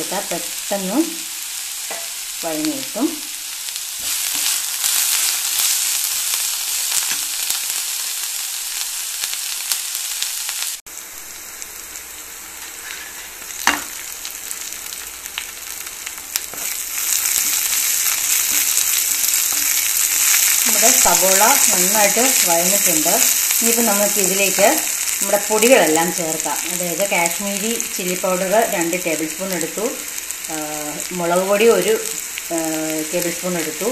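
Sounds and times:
onions sizzling in hot oil: 0.0s - 33.9s
spatula scraping pan: 12.6s - 13.9s.

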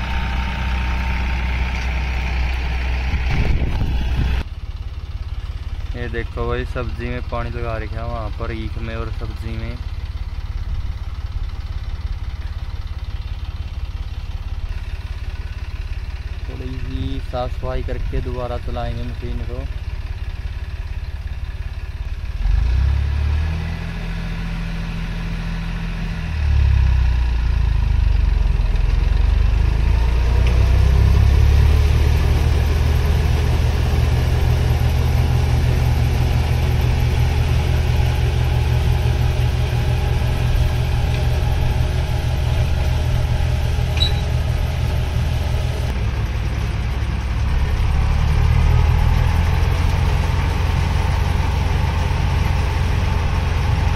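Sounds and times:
tractor engine: 0.0s - 53.9s.

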